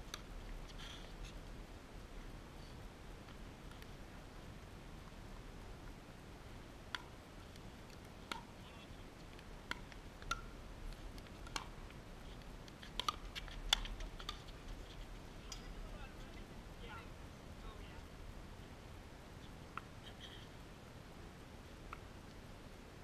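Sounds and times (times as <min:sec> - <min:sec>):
paddles hitting plastic ball: 0:12.7 - 0:14.6.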